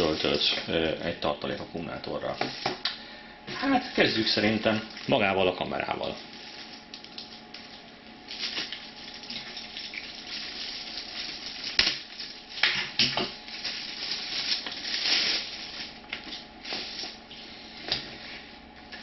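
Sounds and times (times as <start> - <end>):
packaging rustling and crinkling: 0.0 - 0.6, 6.0 - 17.2.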